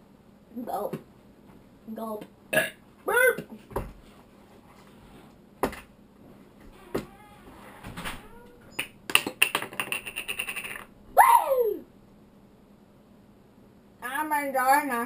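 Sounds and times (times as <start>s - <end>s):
boy making squeaky meow-like glides: 6.7s - 8.8s.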